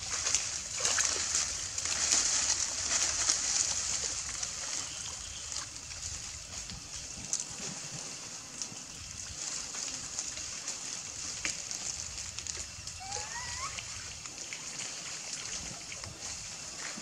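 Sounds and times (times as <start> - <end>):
monkey splashing in water: 0.0 - 17.0
short rising monkey call: 13.0 - 14.0.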